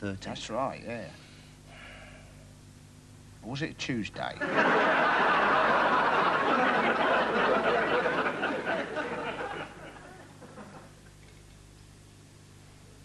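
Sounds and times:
studio audience laughing: 4.4s - 11.0s.

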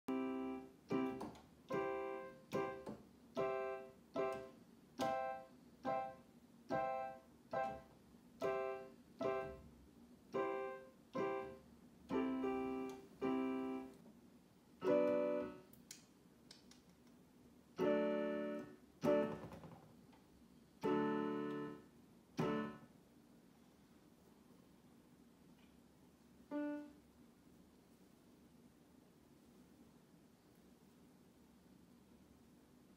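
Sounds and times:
slow piano chords: 0.1s - 9.7s, 10.4s - 14.0s, 14.8s - 15.6s, 17.8s - 19.4s, 20.8s - 21.8s, 22.4s - 22.8s, 26.5s - 27.0s.

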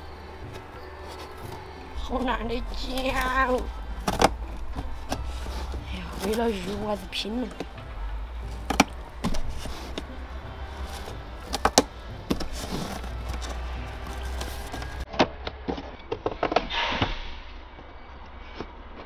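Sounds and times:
scissors cutting cardboard: 8.5s - 15.0s.

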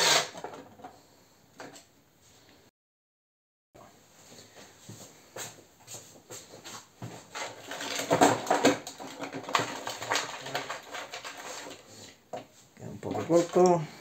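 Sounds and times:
hands clicking and scraping plastic: 7.3s - 13.8s.

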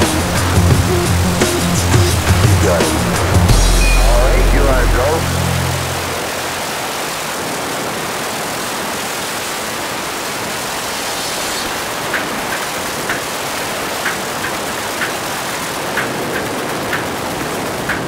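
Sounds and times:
short high blips: 3.5s - 6.6s.

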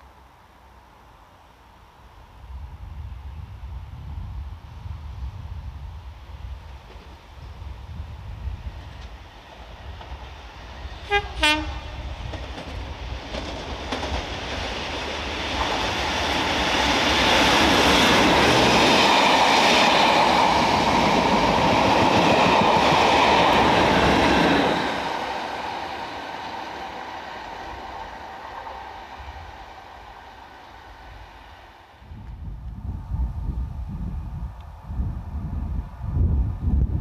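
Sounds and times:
diesel locomotive engine: 0.1s - 37.0s
train wheels on rails: 6.0s - 34.9s.

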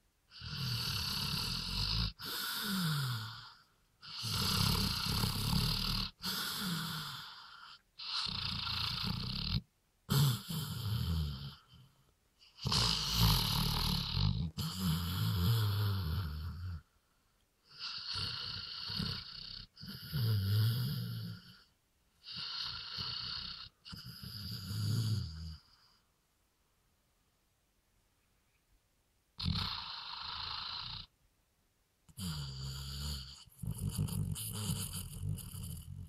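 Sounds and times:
dog snoring loudly: 0.3s - 11.8s, 12.6s - 16.8s, 17.7s - 25.8s, 29.4s - 31.1s, 32.1s - 36.0s.

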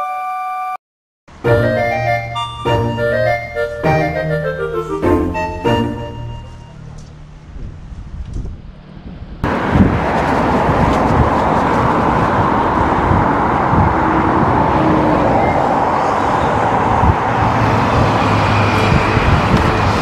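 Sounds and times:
road traffic going by: 1.3s - 20.0s
wind blowing across microphone: 7.4s - 20.0s.

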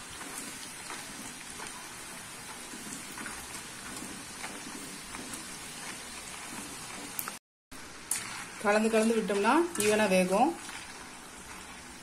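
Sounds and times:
hot oil sizzling: 0.0s - 12.0s.

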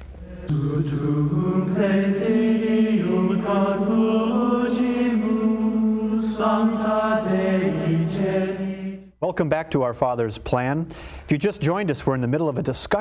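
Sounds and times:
choir chanting long notes: 0.2s - 9.2s.

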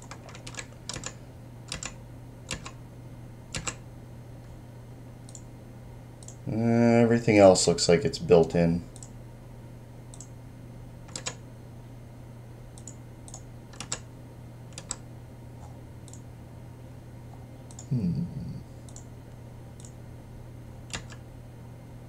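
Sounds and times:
computer keys clicking: 0.0s - 2.8s, 3.5s - 3.8s, 5.3s - 5.5s, 6.2s - 6.4s, 8.9s - 9.2s, 10.1s - 10.3s, 11.1s - 11.4s, 12.8s - 14.1s, 14.7s - 15.0s, 18.8s - 19.1s, 19.8s - 20.0s, 20.9s - 21.2s
steady low hum: 0.0s - 22.0s
brief low voice: 17.9s - 18.7s.

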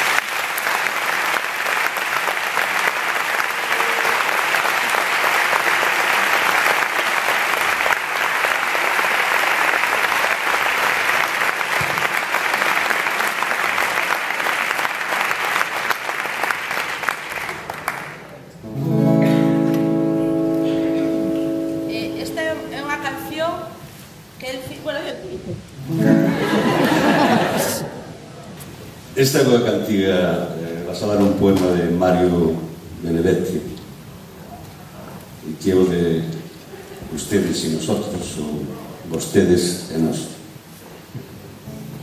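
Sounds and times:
audience applauding: 0.0s - 18.5s, 26.0s - 28.0s
lap steel guitar chord: 18.7s - 23.6s, 25.8s - 26.4s, 41.6s - 42.0s.

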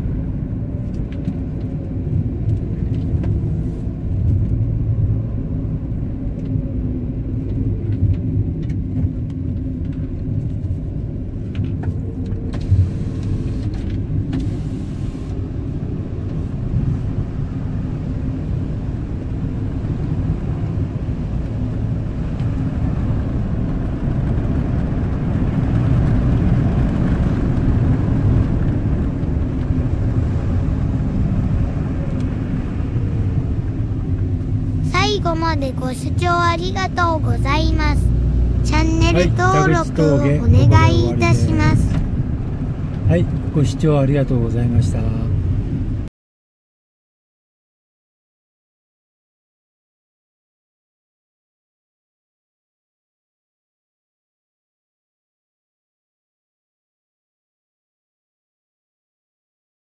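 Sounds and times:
car engine and road rumble: 0.0s - 46.1s.

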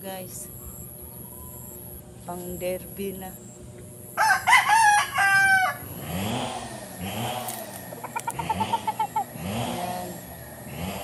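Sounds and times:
rooster crowing: 4.2s - 6.0s
chicken clucking: 7.9s - 9.5s.

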